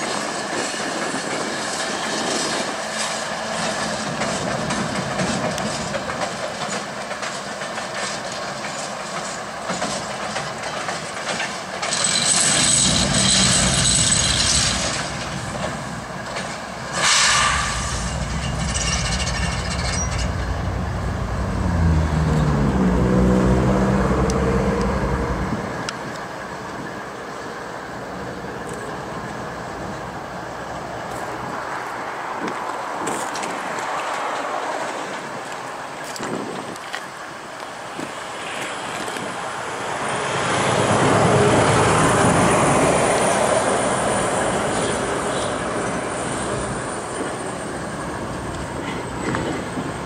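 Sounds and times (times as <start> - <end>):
diesel locomotive engines droning: 0.0 - 50.0
brief hiss: 16.9 - 18.3.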